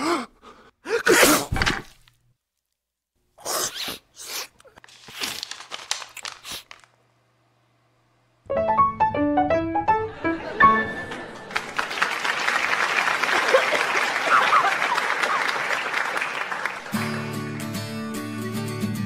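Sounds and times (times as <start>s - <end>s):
comic sneeze: 0.8s - 1.7s, 3.4s - 4.7s.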